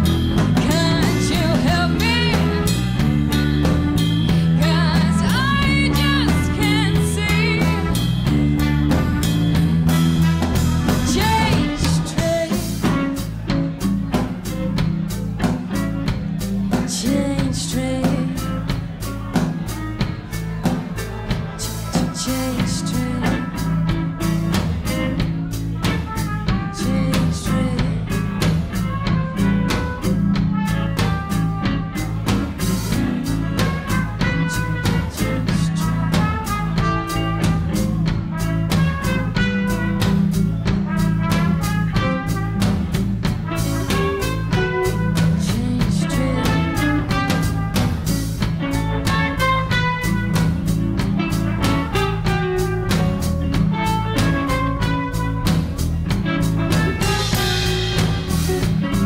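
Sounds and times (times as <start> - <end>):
bass guitar: 0.0 - 59.0
drum kit beat: 0.0 - 59.0
electric guitar: 0.0 - 59.0
person singing: 0.6 - 3.2, 4.0 - 8.1, 10.9 - 13.3, 16.7 - 18.7, 21.5 - 23.9, 26.5 - 28.5, 34.8 - 36.4, 43.6 - 47.5.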